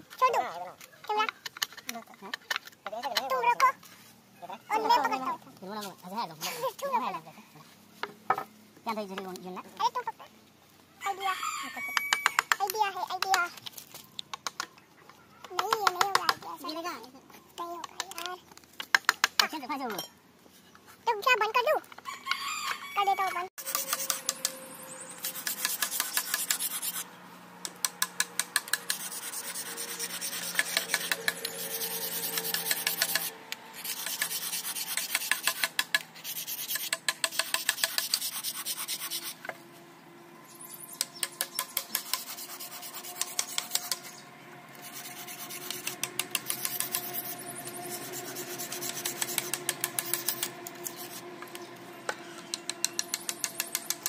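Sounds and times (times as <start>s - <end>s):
file scraping: 23.6s - 27.1s, 27.7s - 39.6s, 41.0s - 51.6s.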